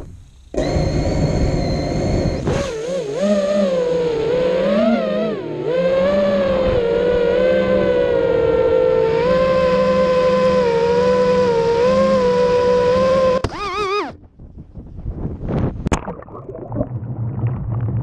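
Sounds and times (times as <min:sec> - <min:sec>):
drone propellers whining: 0:00.0 - 0:14.2.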